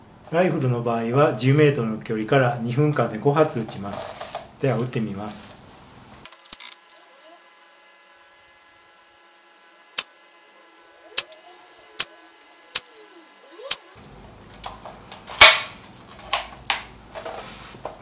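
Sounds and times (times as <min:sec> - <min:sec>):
airsoft gun shots: 0:15.3 - 0:15.8.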